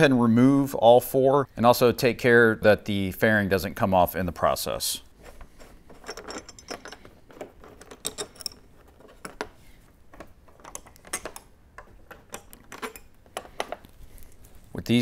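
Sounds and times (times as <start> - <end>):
metallic clicks of screws and driver: 10.2 - 13.9.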